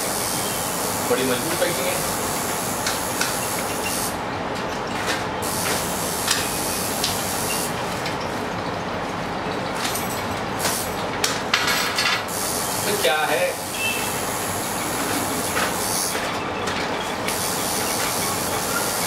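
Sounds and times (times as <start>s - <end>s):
steady loud hiss: 0.0s - 4.2s, 12.2s - 16.2s.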